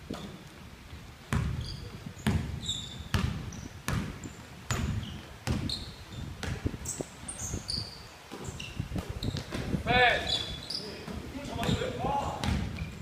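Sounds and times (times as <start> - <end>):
sneakers squeaking: 0.0 - 0.6, 1.3 - 13.0
basketball bouncing on wood floor: 1.3 - 6.8, 8.3 - 10.5, 11.1 - 11.8, 12.4 - 13.0.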